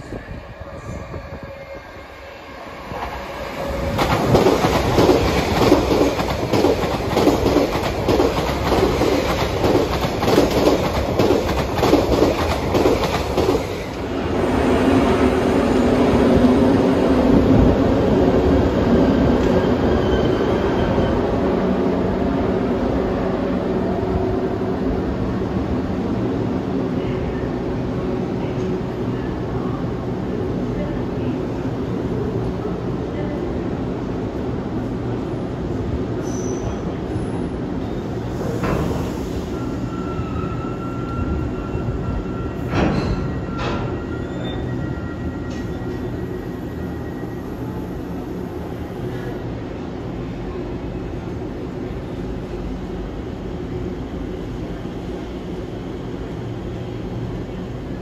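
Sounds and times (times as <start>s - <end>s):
electric locomotives humming past: 0.0s - 58.0s
train wheel clatter: 3.9s - 13.8s.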